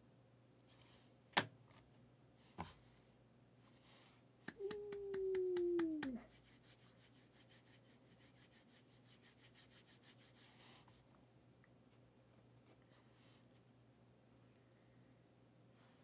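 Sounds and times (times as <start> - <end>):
hands rubbing packaging: 4.5 - 10.8.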